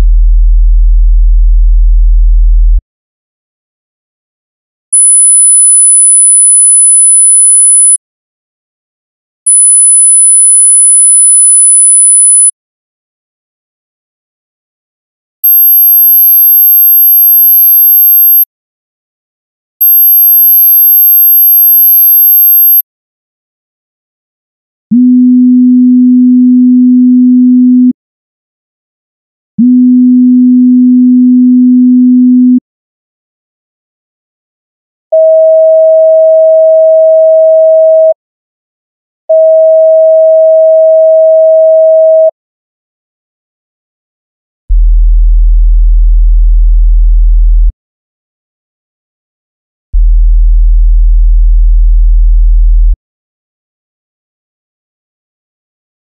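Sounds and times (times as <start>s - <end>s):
high-pitched sine test tone: 5.0s - 8.0s, 9.5s - 12.5s, 50.0s - 52.9s
sine wave test tone: 5.0s - 8.0s, 9.5s - 12.5s, 24.9s - 28.0s, 29.6s - 32.6s, 35.2s - 38.2s, 39.3s - 42.4s, 44.7s - 47.7s, 50.0s - 52.9s.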